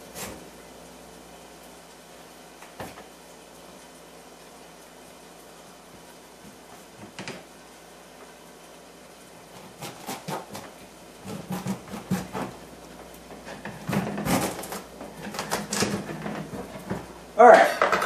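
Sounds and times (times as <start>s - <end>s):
knife cutting squash on board: 0.0s - 0.4s, 9.5s - 12.6s, 13.4s - 17.1s
faint steady hiss: 0.0s - 11.5s
knife cracking squash rind: 9.5s - 12.5s.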